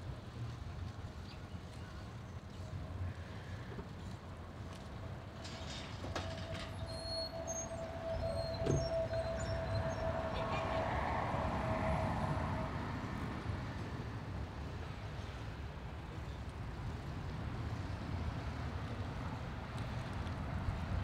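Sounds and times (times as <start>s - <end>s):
thin steady tone: 5.4s - 13.4s.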